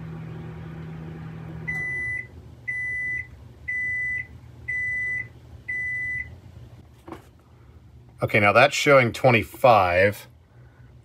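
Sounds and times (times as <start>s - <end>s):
microwave oven humming: 0.0s - 11.0s
microwave high beeps: 1.6s - 6.4s.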